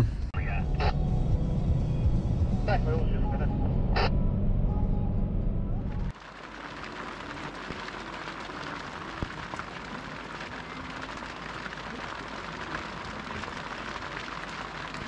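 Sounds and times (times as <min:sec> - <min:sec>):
drops ticking on wet ground: 0:06.1 - 0:15.0
steady rain falling: 0:06.1 - 0:15.0.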